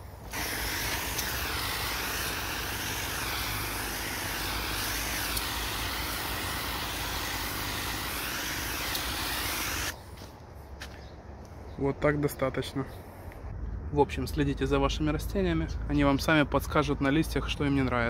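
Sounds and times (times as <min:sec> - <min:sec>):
pressure sprayer hissing: 0:00.0 - 0:10.0.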